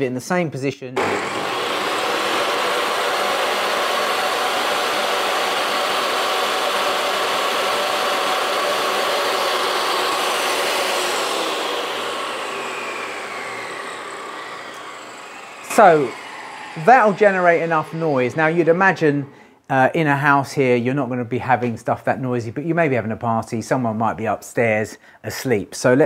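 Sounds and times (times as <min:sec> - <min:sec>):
table saw whining: 0:01.0 - 0:19.5.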